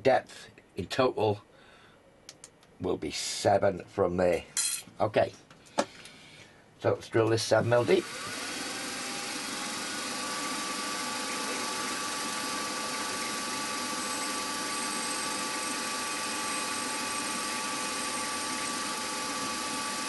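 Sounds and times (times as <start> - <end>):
milling machine spindle humming: 7.8 - 20.0.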